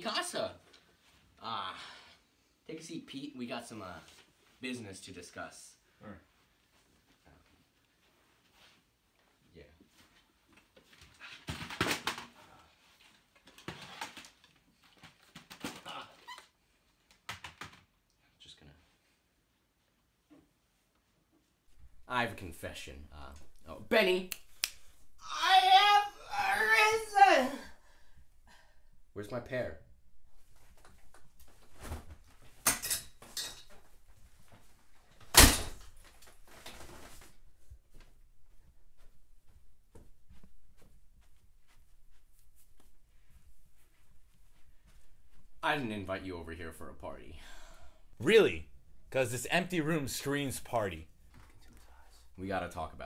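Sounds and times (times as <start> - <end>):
shuffling: 35.9 - 45.6.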